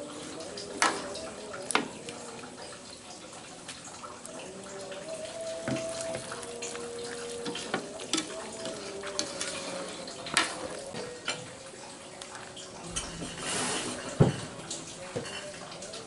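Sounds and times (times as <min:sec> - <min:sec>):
wooden ladle stirring in wok: 0:05.1 - 0:11.6.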